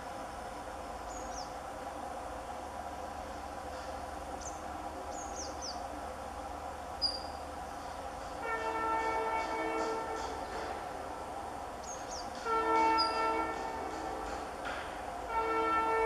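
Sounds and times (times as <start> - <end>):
bird chirps: 7.0 - 7.4, 11.8 - 12.3
diesel locomotive horn blast: 8.3 - 16.0.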